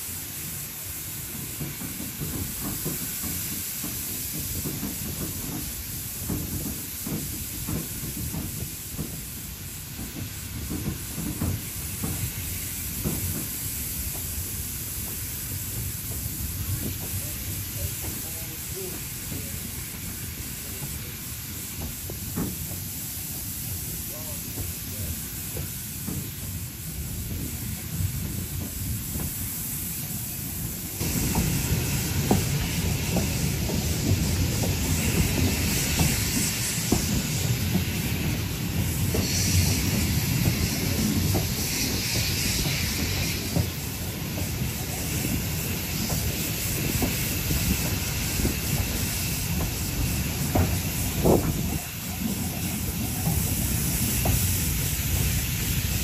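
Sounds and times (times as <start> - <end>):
hiss: 0.0 - 56.0
train running gear rumble: 0.0 - 56.0.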